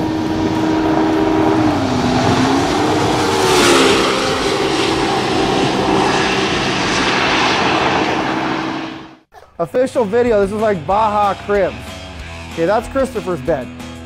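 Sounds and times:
race car engine running hard: 0:00.0 - 0:09.3.

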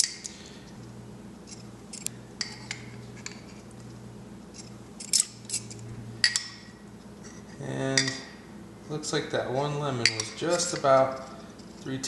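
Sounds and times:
metal spoons clinking: 0:10.0 - 0:11.9.

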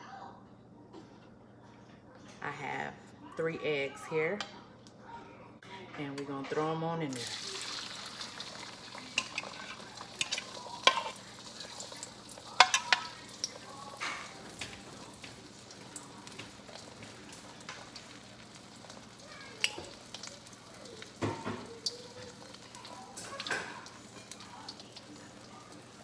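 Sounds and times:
eggs sizzling in hot oil: 0:07.1 - 0:26.0.

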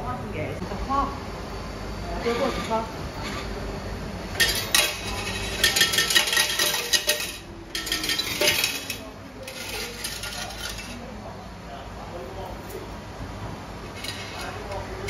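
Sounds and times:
small hard objects clattering: 0:04.4 - 0:11.0.

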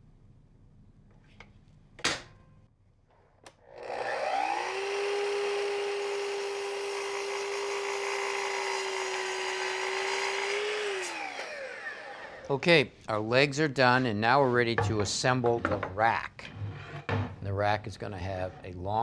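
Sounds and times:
miter saw motor running: 0:03.7 - 0:12.5
saw blade cutting wood: 0:03.8 - 0:12.5.

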